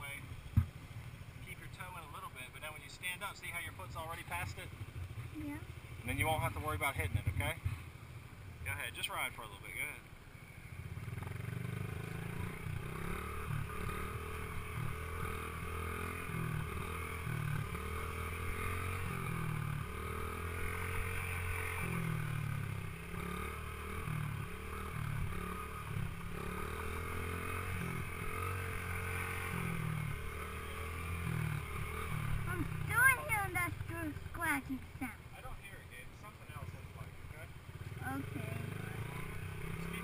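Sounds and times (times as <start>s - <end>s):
dirt bike engine revving: 10.7s - 35.2s, 36.4s - 40.0s.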